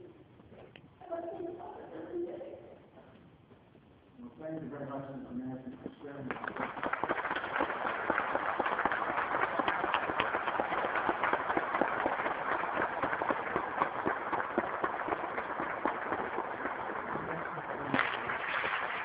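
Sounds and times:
audience applauding: 0:06.3 - 0:19.0.

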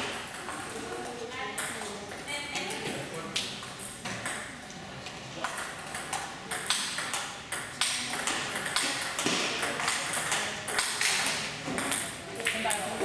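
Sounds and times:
table tennis ball hits: 0:05.4 - 0:13.0.

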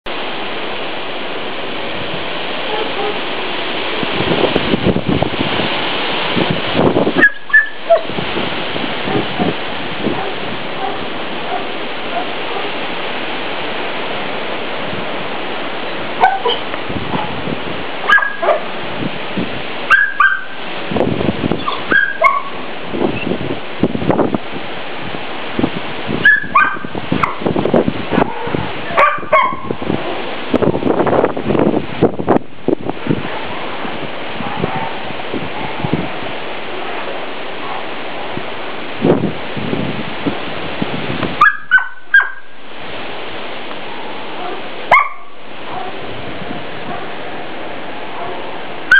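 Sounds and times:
steady rushing noise: 0:00.0 - 0:48.9
wind noise: 0:00.0 - 0:48.9
dog barking: 0:02.6 - 0:03.3, 0:07.2 - 0:08.1, 0:09.0 - 0:12.8, 0:16.2 - 0:17.4, 0:18.1 - 0:18.7, 0:19.9 - 0:20.6, 0:21.6 - 0:22.6, 0:26.3 - 0:27.4, 0:28.1 - 0:29.8, 0:34.4 - 0:35.0, 0:36.7 - 0:38.0, 0:41.4 - 0:42.5, 0:44.4 - 0:46.0, 0:46.8 - 0:47.2, 0:48.1 - 0:48.9
high-pitched animal calls: 0:07.2 - 0:08.1, 0:21.6 - 0:22.6.

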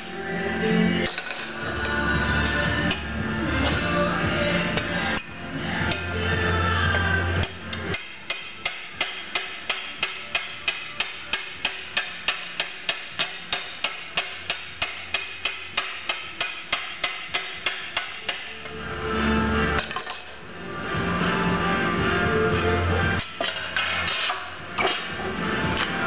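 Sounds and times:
background music: 0:00.0 - 0:26.0
hammer tapping sheet metal: 0:07.4 - 0:18.6.

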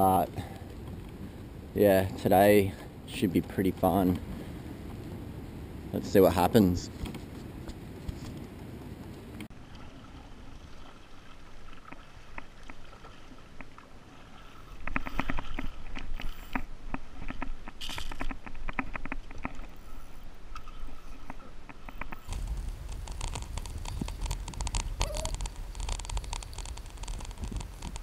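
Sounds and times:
water slapping against kayak: 0:22.2 - 0:28.0.

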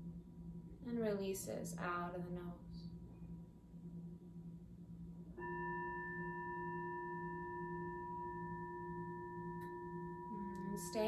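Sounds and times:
singing bowl ringing: 0:05.2 - 0:11.0.

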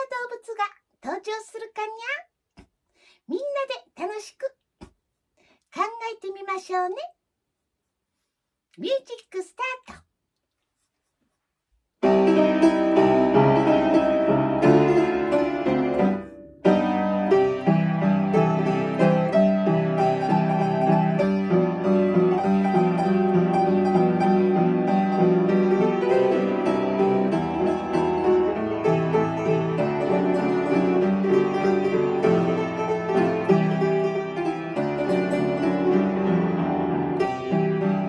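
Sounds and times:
upright piano playing: 0:12.0 - 0:38.0.

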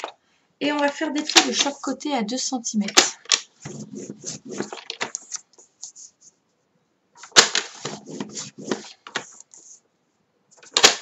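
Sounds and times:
cardstock rustling and tapping: 0:03.0 - 0:06.1, 0:07.2 - 0:09.7.

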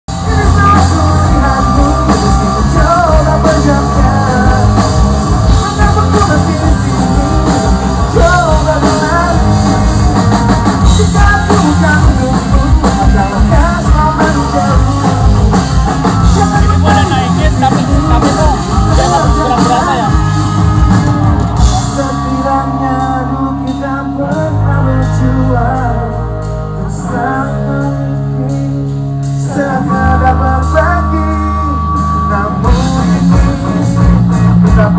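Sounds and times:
man singing: 0:00.1 - 0:34.9
rock band playing: 0:00.1 - 0:34.9.

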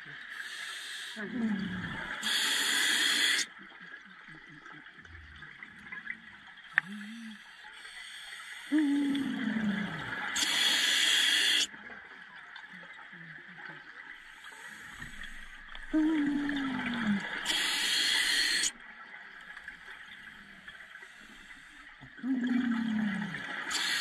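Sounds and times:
diver inhaling through regulator: 0:02.2 - 0:03.5, 0:10.3 - 0:11.7, 0:17.2 - 0:18.7, 0:23.7 - 0:24.0
rush of exhaled bubbles: 0:22.2 - 0:24.0.

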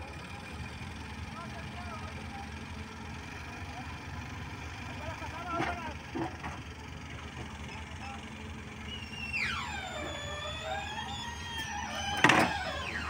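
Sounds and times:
diesel engines rumbling: 0:00.0 - 0:13.0
high mechanical squeal: 0:08.8 - 0:13.0.

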